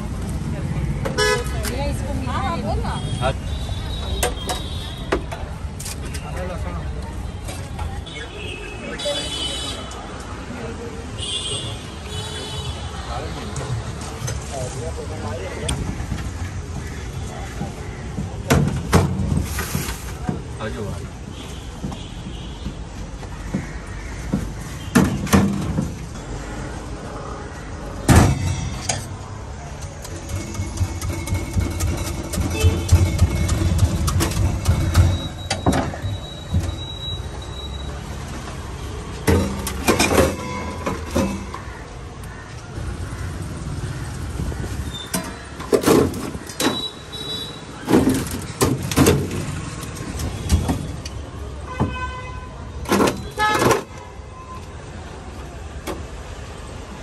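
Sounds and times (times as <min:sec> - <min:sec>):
street background noise: 0:00.0 - 0:57.0
steel containers knocking: 0:30.2 - 0:36.8.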